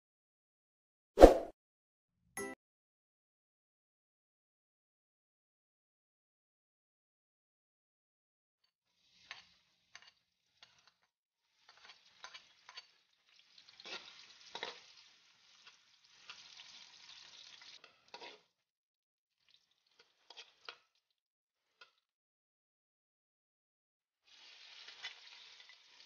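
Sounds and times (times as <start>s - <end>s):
metal spoon scraping a pan: 8.9s - 16.8s, 17.5s - 18.6s, 19.9s - 20.9s
faint frying sizzle: 8.9s - 18.6s, 19.4s - 21.0s, 24.2s - 26.0s.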